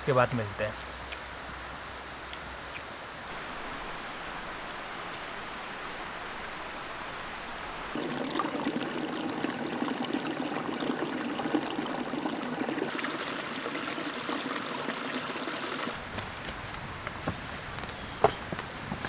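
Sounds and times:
steady hiss: 0.0 - 8.0
stream babbling over rocks: 3.3 - 16.2.

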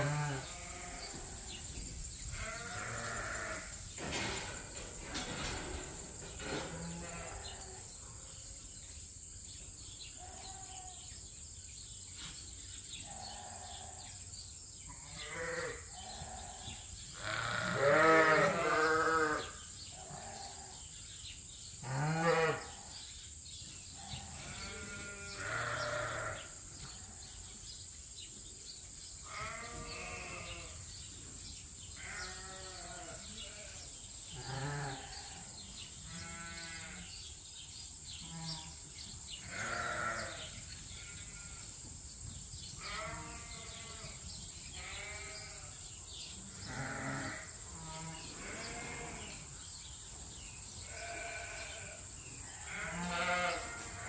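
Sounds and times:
sheep bleating: 0.0 - 1.2, 2.4 - 3.7, 15.1 - 16.6, 17.2 - 19.5, 21.9 - 22.8, 24.4 - 26.5, 29.3 - 30.8, 32.0 - 33.8, 39.5 - 41.6, 42.8 - 44.2, 44.8 - 45.7, 46.7 - 49.3, 50.9 - 54.0.

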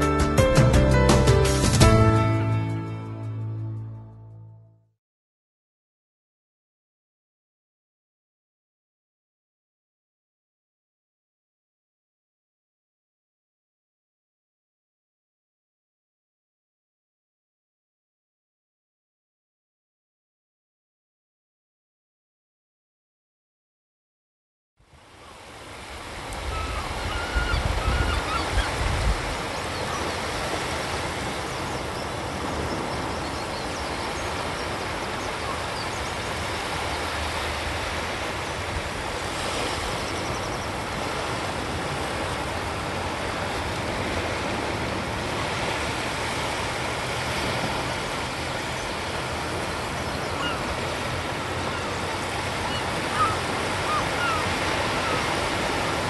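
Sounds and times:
surf washing onto beach: 25.0 - 56.0.

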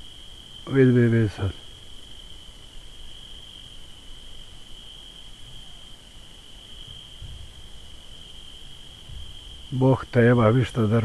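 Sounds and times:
crickets trilling: 0.0 - 11.0
faint dull thump: 7.2 - 7.5.

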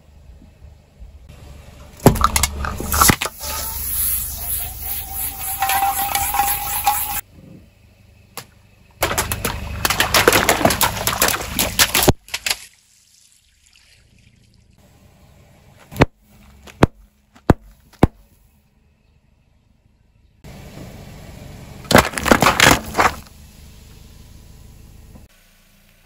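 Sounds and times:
water balloons bursting and spraying: 1.9 - 7.2, 9.0 - 14.5
aerosol can hissing: 3.3 - 7.2.

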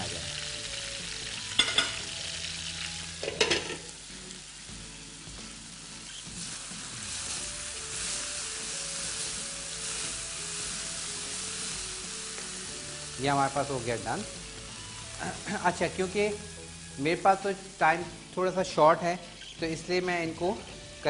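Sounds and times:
vegetables sizzling in oil: 0.0 - 21.0
utensil clattering against pan: 3.2 - 3.9.

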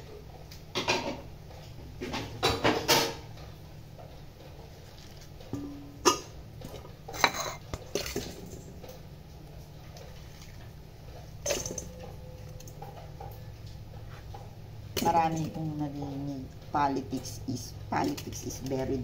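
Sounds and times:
bowl and utensils clattering: 2.0 - 3.6, 4.9 - 9.0, 11.2 - 16.3.

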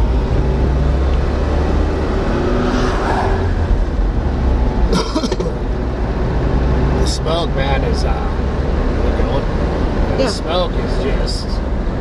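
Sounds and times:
engine and tyre rumble: 0.0 - 12.0
car swishing past: 1.0 - 3.8.

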